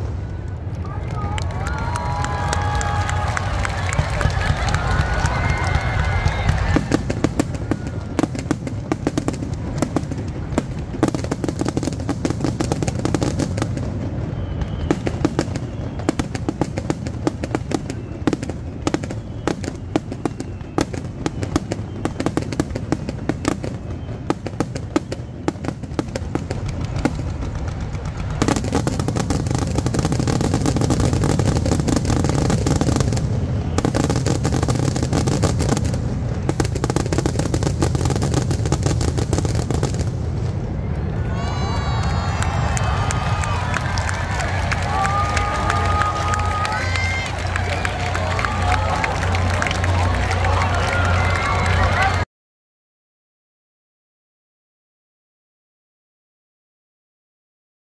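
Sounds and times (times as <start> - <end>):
fireworks crackling: 0.0 - 52.2.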